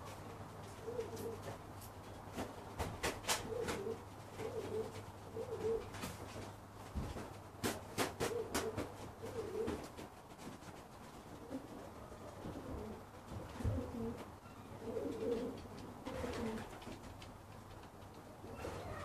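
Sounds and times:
pigeons cooing: 0:00.0 - 0:01.6, 0:03.2 - 0:06.2, 0:08.0 - 0:10.0, 0:11.3 - 0:17.1, 0:18.0 - 0:19.0.

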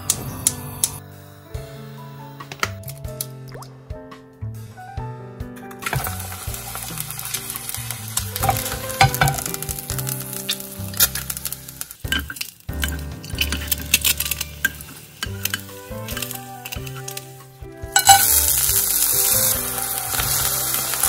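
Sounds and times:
food sizzling in frying pan: 0:05.8 - 0:21.0
wooden spatula tapping pan: 0:08.4 - 0:09.8.

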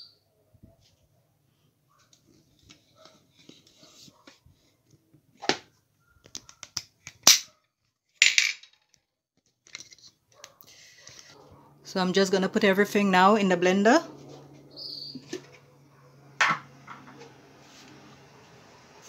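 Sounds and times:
kitchen things clicking and knocking: 0:16.4 - 0:17.3.

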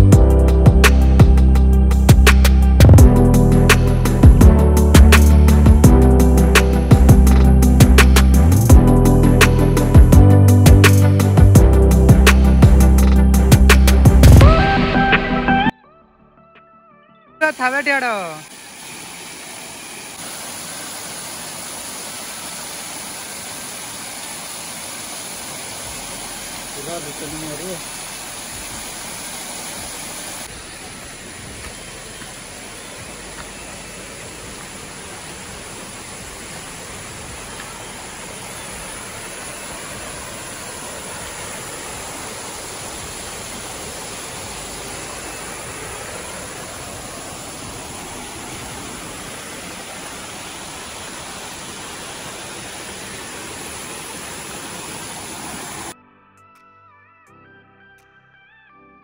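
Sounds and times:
stream rushing over rock: 0:17.4 - 0:56.0.

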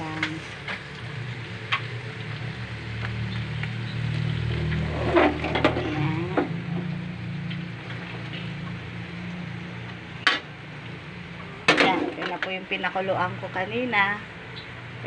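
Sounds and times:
gas burner hissing: 0:00.0 - 0:15.0
wok clanking on stove: 0:04.6 - 0:07.0, 0:11.6 - 0:12.6.

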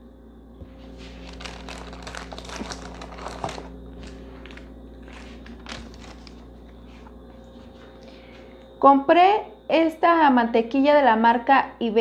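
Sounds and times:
plastic bags crinkling: 0:00.8 - 0:06.6.

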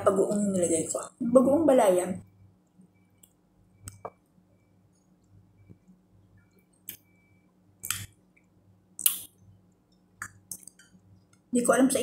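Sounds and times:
wet mouth smacks chewing: 0:09.0 - 0:09.3.

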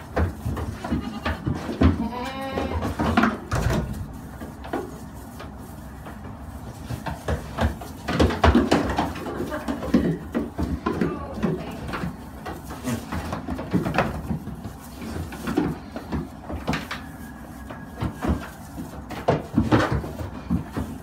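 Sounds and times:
hooves clattering on wooden boards: 0:00.0 - 0:21.0
goat kids bleating: 0:00.4 - 0:03.2.

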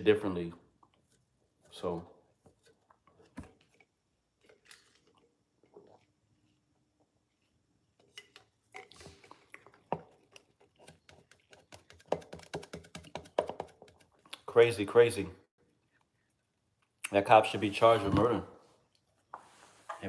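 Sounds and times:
sips and swallows: 0:02.6 - 0:11.6.

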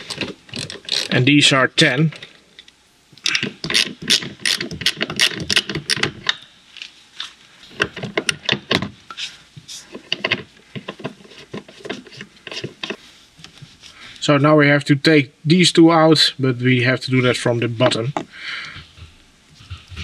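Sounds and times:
ratchet wrench clicking: 0:00.1 - 0:01.2.

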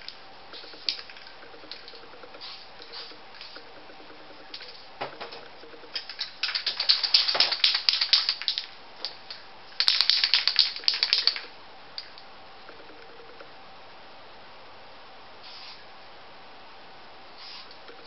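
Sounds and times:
spray can ball rattling: 0:00.0 - 0:12.2.

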